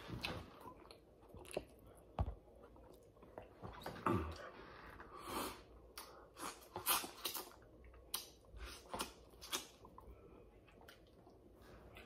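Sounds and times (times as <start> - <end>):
wet chewing: 6.0 - 12.0.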